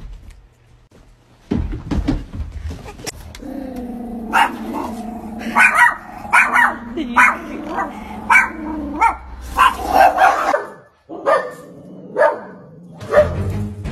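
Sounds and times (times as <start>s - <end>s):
low drone: 3.3s - 10.6s
dogs barking: 3.9s - 13.5s.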